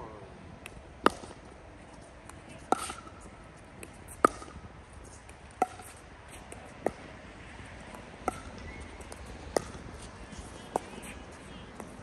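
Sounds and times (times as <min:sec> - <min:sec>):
paddle hitting plastic ball: 0:01.0 - 0:01.4, 0:04.2 - 0:04.6.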